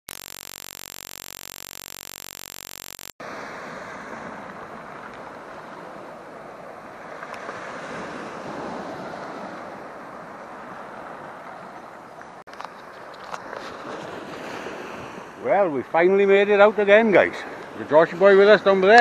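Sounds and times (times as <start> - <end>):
steady electronic tone: 0.1 - 3.2
waves breaking on stony shore: 3.2 - 15.6.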